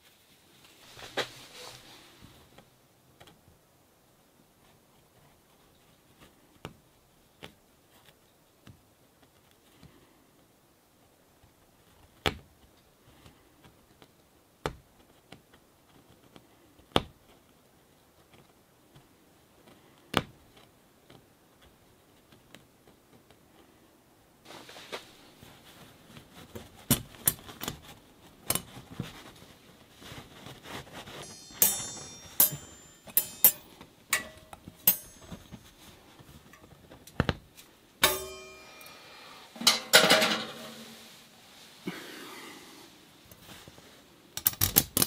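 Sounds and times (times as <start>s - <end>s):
metal ring clicking and clinking: 31.2s - 36.7s.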